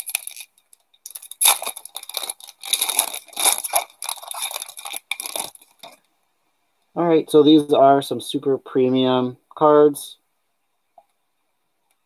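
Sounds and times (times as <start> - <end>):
foil wrapper crinkling and tearing: 0.0 - 6.0.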